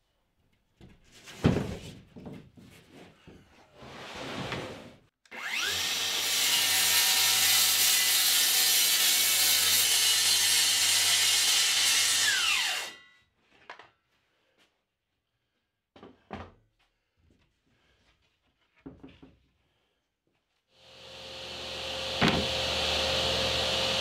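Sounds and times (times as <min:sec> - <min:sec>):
circular saw cutting plywood: 0:05.3 - 0:13.0, 0:20.8 - 0:24.0.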